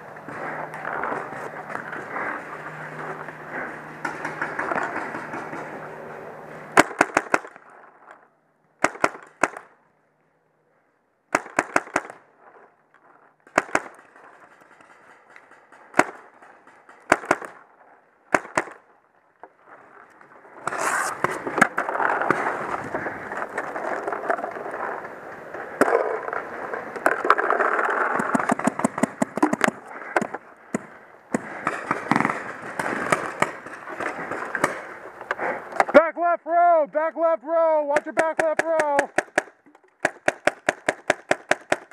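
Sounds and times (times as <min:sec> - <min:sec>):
paintball marker firing: 0:06.8 - 0:07.6, 0:08.8 - 0:09.8, 0:11.3 - 0:12.2, 0:13.5 - 0:14.0, 0:15.9 - 0:17.6, 0:18.3 - 0:18.8, 0:28.2 - 0:34.9, 0:37.9 - 0:41.9.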